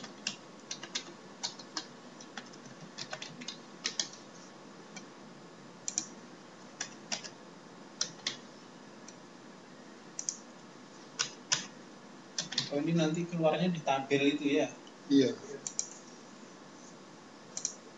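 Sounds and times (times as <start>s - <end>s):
computer keyboard typing: 0.0s - 4.3s, 5.8s - 6.2s, 6.8s - 7.4s, 8.0s - 8.4s, 10.2s - 10.5s, 11.2s - 11.7s, 12.4s - 12.7s, 15.6s - 16.0s, 17.6s - 17.8s.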